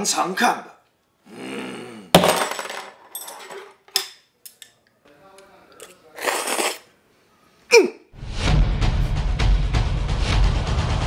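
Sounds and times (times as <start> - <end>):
slurping noodle soup: 5.8 - 6.9.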